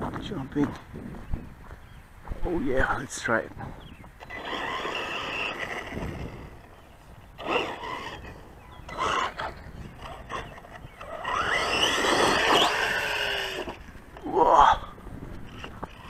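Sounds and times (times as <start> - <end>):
wind: 0.0 - 16.0
rc car electric motor whining: 4.2 - 14.3, 15.4 - 16.0.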